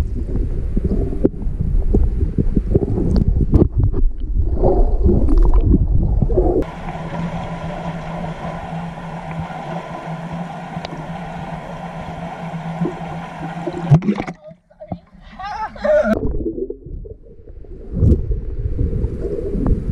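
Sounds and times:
underwater rushing: 0:00.0 - 0:19.9
faint low hum: 0:06.2 - 0:19.9
underwater hiss: 0:06.6 - 0:14.0.

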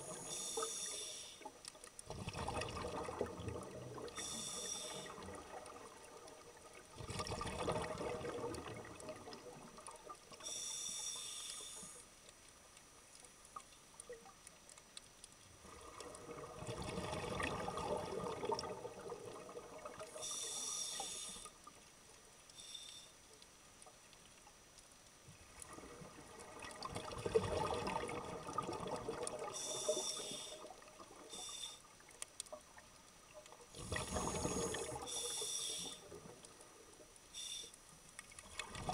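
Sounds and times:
regulator inhalation hiss: 0:00.0 - 0:01.6, 0:04.2 - 0:05.3, 0:10.4 - 0:12.1, 0:20.2 - 0:21.6, 0:22.5 - 0:23.2, 0:29.5 - 0:30.7, 0:31.3 - 0:32.0, 0:33.8 - 0:36.1, 0:37.3 - 0:37.8.

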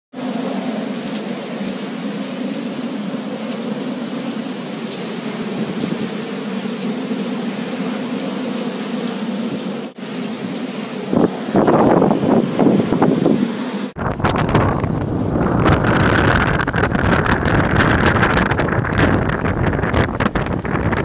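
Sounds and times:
strong wind: 0:10.5 - 0:21.0.

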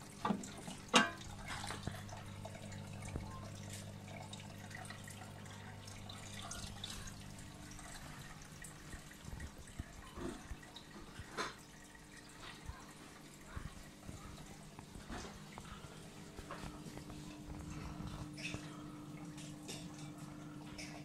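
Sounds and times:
water trickling and dripping: 0:00.0 - 0:21.0
low steady hum: 0:00.1 - 0:21.0.

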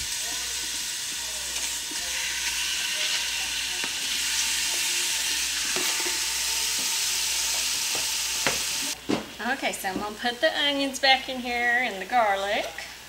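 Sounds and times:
meat sizzling in hot oil: 0:00.0 - 0:09.0.

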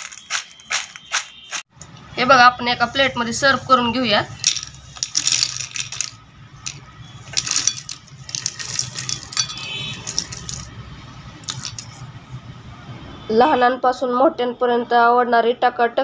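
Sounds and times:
fried snacks clattering onto plate: 0:00.0 - 0:01.3, 0:04.4 - 0:10.7, 0:11.5 - 0:12.0.

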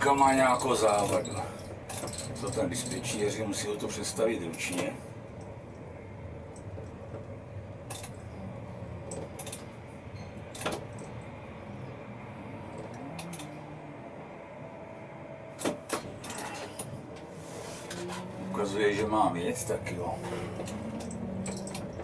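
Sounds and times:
tram hum: 0:00.0 - 0:22.0
metallic clinks and rattles: 0:00.9 - 0:03.0, 0:20.4 - 0:22.0.

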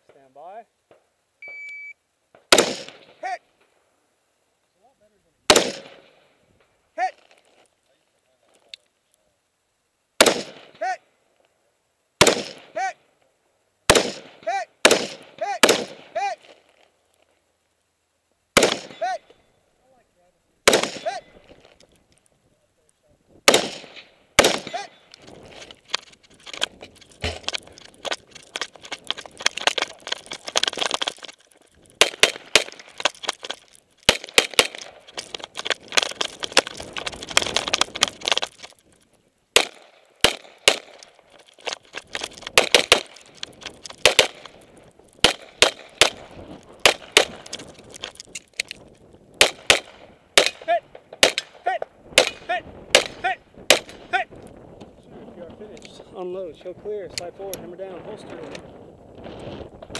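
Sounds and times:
pistol gunshots: 0:02.5 - 0:03.2, 0:05.5 - 0:06.2, 0:10.2 - 0:10.8, 0:12.2 - 0:12.8, 0:13.9 - 0:16.2, 0:18.6 - 0:19.1, 0:20.6 - 0:21.4, 0:23.4 - 0:25.0, 0:32.0 - 0:38.4, 0:39.6 - 0:41.2, 0:42.5 - 0:44.6, 0:45.2 - 0:47.7, 0:49.4 - 0:54.1
rifle gunshots: 0:02.5 - 0:03.2, 0:05.5 - 0:06.2, 0:10.2 - 0:10.9, 0:12.2 - 0:12.8, 0:13.9 - 0:16.5, 0:18.6 - 0:19.1, 0:20.6 - 0:21.5, 0:23.4 - 0:25.0, 0:32.0 - 0:38.7, 0:39.6 - 0:41.2, 0:42.1 - 0:44.6, 0:45.2 - 0:48.0, 0:49.4 - 0:54.2.

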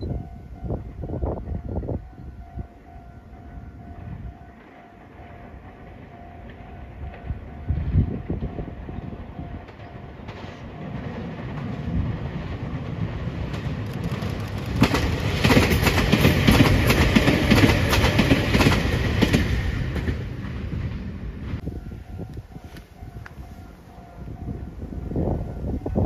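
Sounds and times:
electric train passing: 0:00.0 - 0:26.0
wheels clacking over rail joints: 0:08.2 - 0:21.0.

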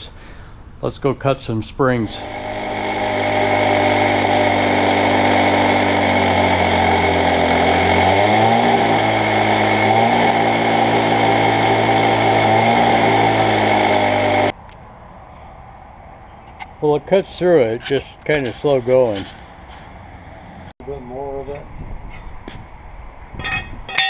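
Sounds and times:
cut-off saw grinding steel: 0:01.9 - 0:14.5.

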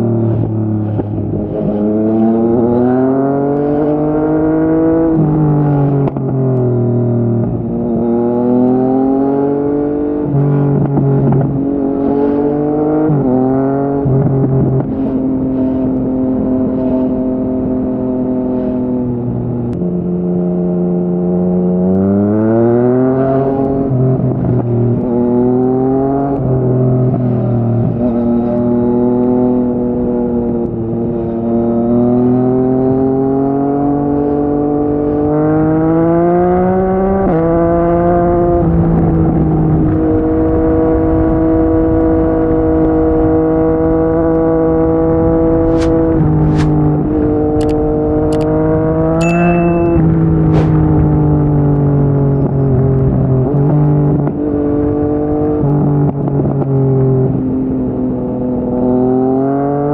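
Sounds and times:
motorcycle engine shifting gears: 0:20.9 - 0:59.9.

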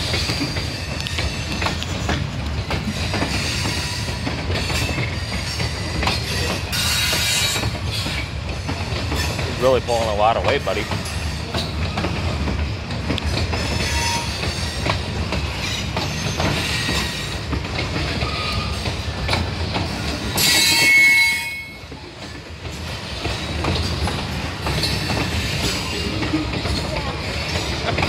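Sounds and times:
freight train wheels rumbling: 0:00.0 - 0:28.0
wheels clicking over rail joints: 0:00.0 - 0:28.0
high metallic wheel squeal: 0:06.3 - 0:08.2, 0:13.6 - 0:14.9, 0:18.2 - 0:18.8, 0:20.4 - 0:21.8.

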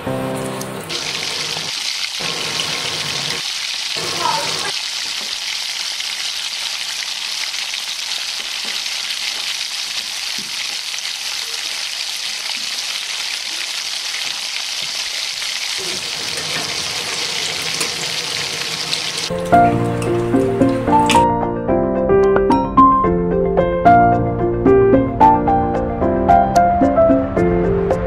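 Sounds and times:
fritters sizzling in hot oil: 0:00.3 - 0:19.3.

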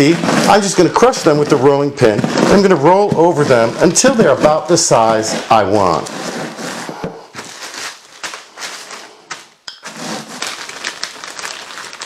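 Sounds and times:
plastic bag rustling: 0:00.0 - 0:12.0
bread crumbs crushed in plastic bag: 0:09.9 - 0:12.0.

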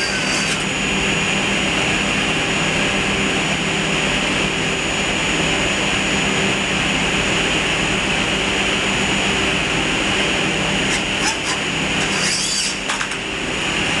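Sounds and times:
thin high whine: 0:00.0 - 0:05.8, 0:09.2 - 0:13.1
machinery drone: 0:00.0 - 0:14.0.

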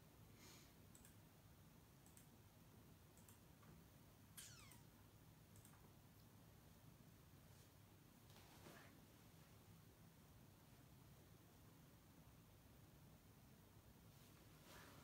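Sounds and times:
faint soft clicks: 0:00.9 - 0:01.2, 0:02.0 - 0:02.4, 0:03.1 - 0:03.8, 0:05.5 - 0:06.4.

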